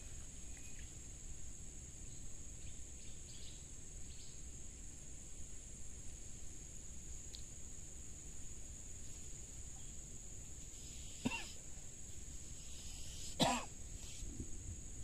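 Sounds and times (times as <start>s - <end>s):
faint bird chirps: 0.0s - 1.0s, 2.0s - 4.5s, 12.5s - 14.3s
high-pitched insect drone: 9.8s - 14.3s.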